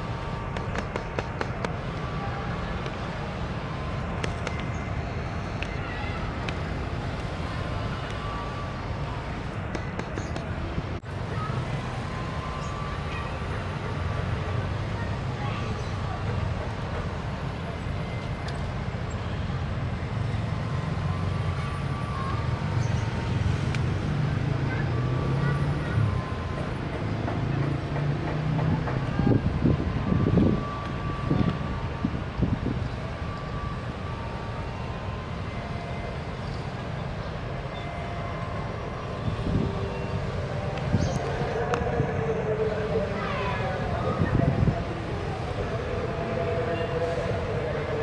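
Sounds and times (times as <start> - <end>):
diesel locomotive running: 0.0 - 22.8, 23.4 - 48.0
traffic engine rumble: 0.0 - 48.0
motor scooters: 0.4 - 3.0.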